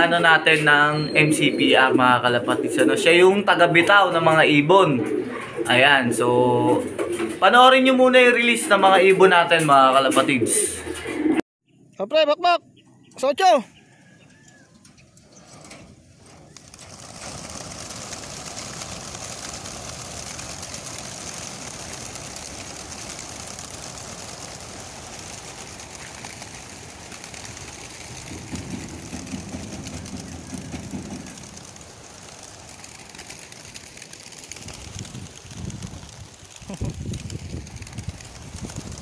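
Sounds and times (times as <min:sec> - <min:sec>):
pigeon wings flapping: 0:03.8 - 0:07.6, 0:16.3 - 0:39.0.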